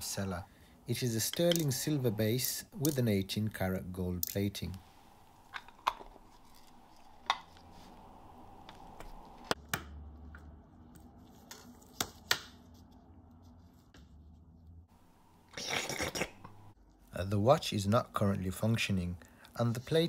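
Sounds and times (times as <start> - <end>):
metal tools clicking and tapping: 1.3 - 1.7.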